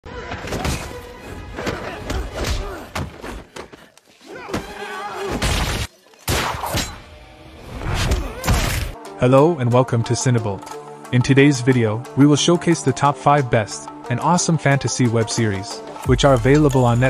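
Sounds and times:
dramatic trailer music: 6.4 - 17.0.

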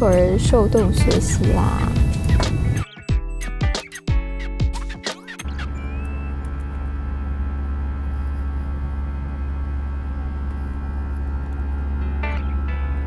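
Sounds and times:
airliner cabin engine rush: 0.0 - 2.8, 5.4 - 12.0.

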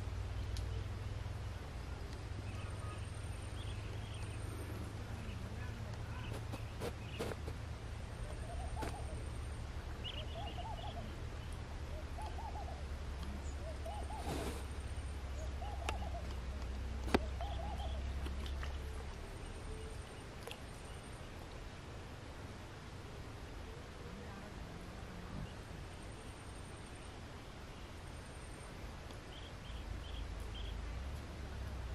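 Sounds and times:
bird calling: 8.2 - 21.1.

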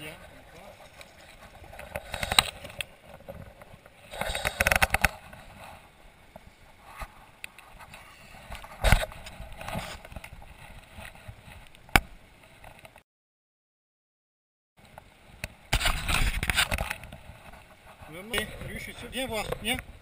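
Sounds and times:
splashing and rustling: 0.1 - 5.9.

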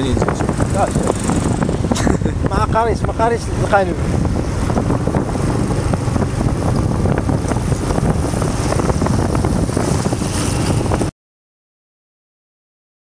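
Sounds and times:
motorcycle engine running: 0.0 - 11.1
wind rumbling on microphone: 0.0 - 11.1.

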